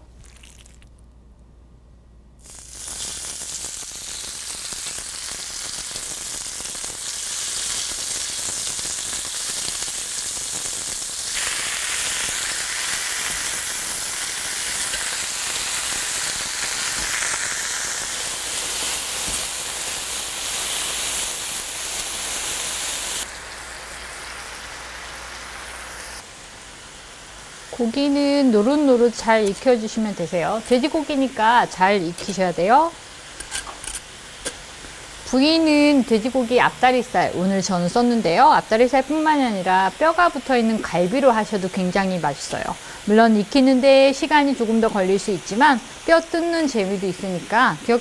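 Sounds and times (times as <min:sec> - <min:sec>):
meat sizzling on grill pan: 0:02.4 - 0:48.0.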